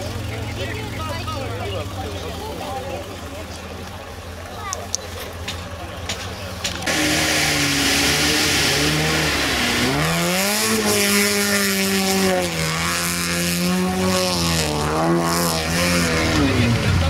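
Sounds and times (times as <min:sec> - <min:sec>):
engine revving hard: 0:06.8 - 0:17.0
water and mud spraying: 0:06.9 - 0:14.7.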